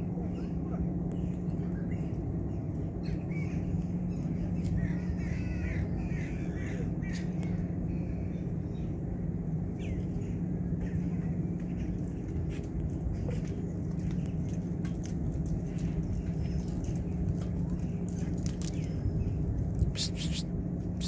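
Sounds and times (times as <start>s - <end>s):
low outdoor hum: 0.0s - 21.0s
bird calls: 17.8s - 21.0s.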